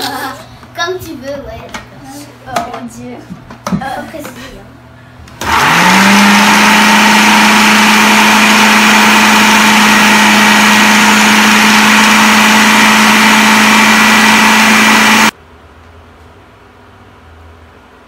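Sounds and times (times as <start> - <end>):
food processor motor chopping: 5.3 - 15.3.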